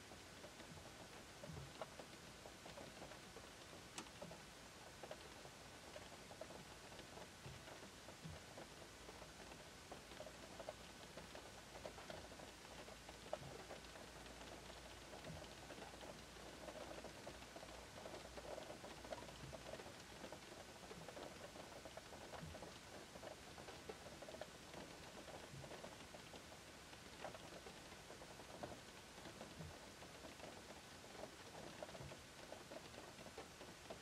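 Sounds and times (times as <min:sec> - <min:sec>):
light rain on car roof: 0:00.0 - 0:34.0.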